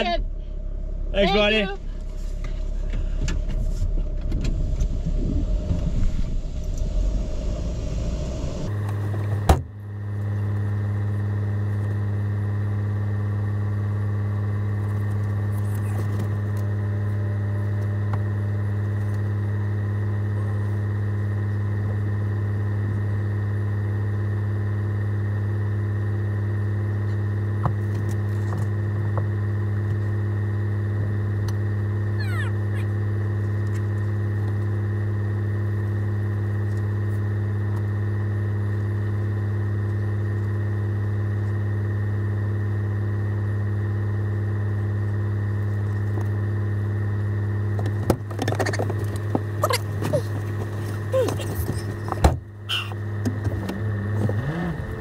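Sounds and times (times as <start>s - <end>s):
low engine hum: 0.0s - 55.0s
van engine rumbling on dirt road: 0.0s - 55.0s.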